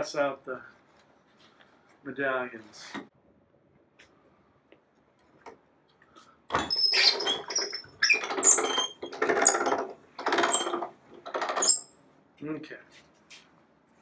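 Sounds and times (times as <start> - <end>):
slab roller squealing scrapes: 6.6 - 9.8, 11.6 - 11.9.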